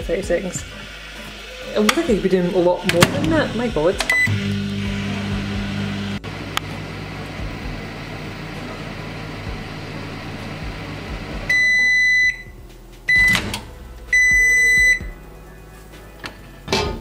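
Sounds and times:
microwave oven humming: 3.4s - 15.1s
long high beep: 11.5s - 13.4s, 14.2s - 15.1s.

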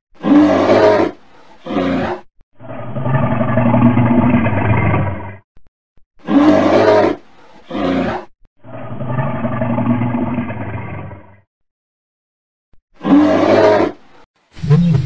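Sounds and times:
bear roaring and growling: 0.2s - 5.4s, 6.2s - 11.4s, 12.9s - 14.0s.

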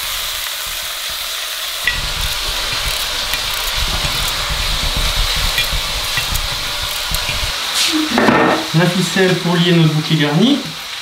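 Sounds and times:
meat and onions sizzling in oil: 0.0s - 11.0s
low rumble: 1.8s - 7.5s.

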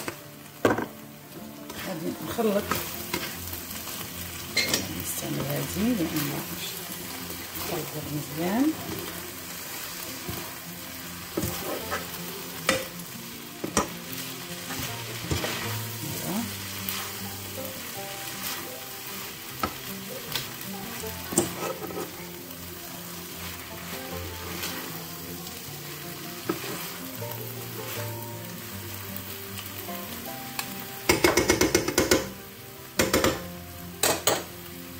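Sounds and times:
noodles sizzling in a wok: 0.0s - 34.9s
spatula clicking and scraping pan: 2.6s - 6.3s, 11.3s - 13.0s, 13.6s - 20.6s, 21.2s - 22.3s, 26.4s - 27.0s, 30.6s - 32.3s.

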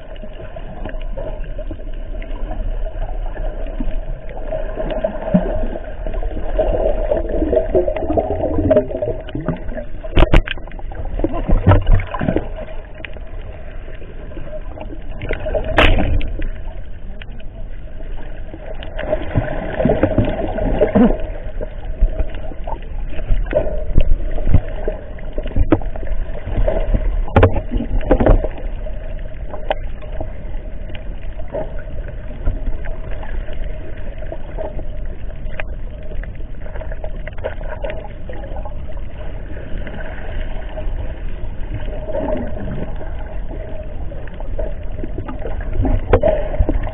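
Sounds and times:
underwater hum and rumble: 0.0s - 46.9s
water bubbling: 0.0s - 46.9s
knocks and splashes: 6.6s - 12.8s, 15.2s - 16.5s, 23.4s - 28.7s.

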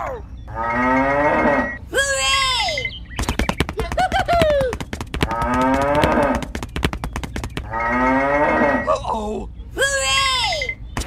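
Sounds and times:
cattle mooing: 0.5s - 1.8s, 5.3s - 6.5s, 7.7s - 8.9s
rapid sharp clicks: 3.2s - 7.7s.

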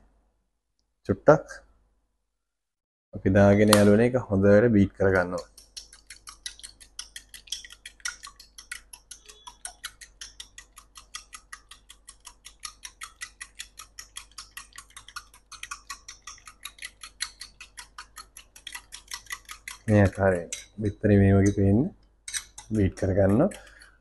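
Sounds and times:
fork beating eggs in bowl: 5.0s - 24.0s.

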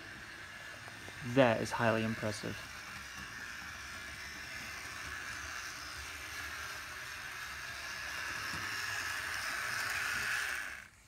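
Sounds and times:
model train motor whirring: 0.0s - 11.0s.

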